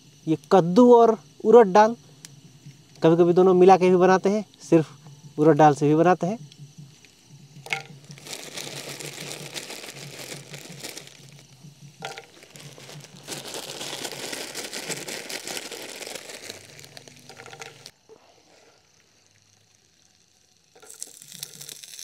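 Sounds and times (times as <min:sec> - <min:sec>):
oil sizzling and crackling in a pan: 0:07.1 - 0:22.0.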